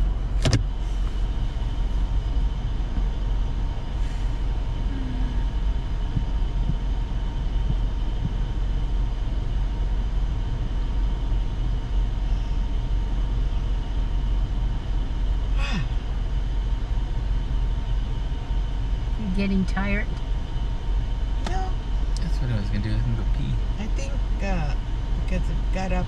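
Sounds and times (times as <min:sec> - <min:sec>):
car cabin rumble: 0:00.0 - 0:12.2, 0:19.1 - 0:20.3, 0:21.4 - 0:26.0.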